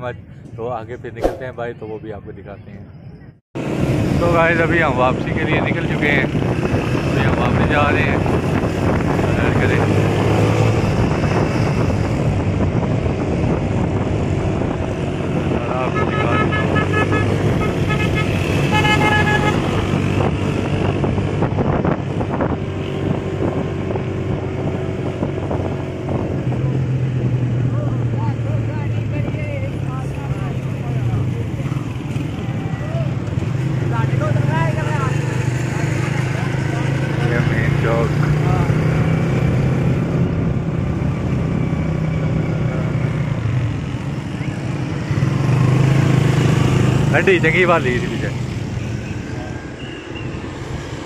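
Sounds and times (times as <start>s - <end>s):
road and wind noise: 0.0s - 51.0s
motorcycle engine cruising: 3.6s - 51.0s
wind noise: 6.2s - 27.6s
vehicle horn toot: 15.9s - 19.7s.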